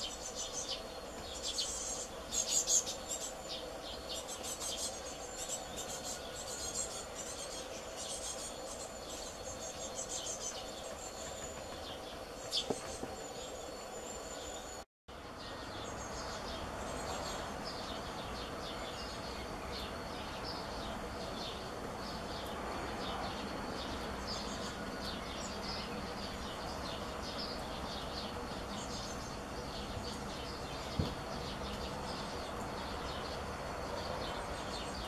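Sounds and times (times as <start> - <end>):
birds chirping and singing: 0.0 - 14.8
outdoor noise haze: 0.0 - 35.0.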